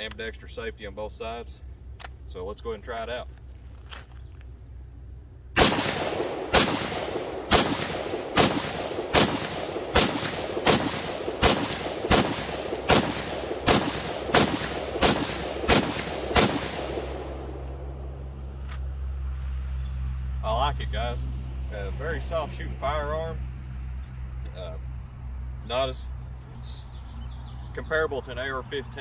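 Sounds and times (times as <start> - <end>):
rifle shots with echo: 5.6 - 18.1.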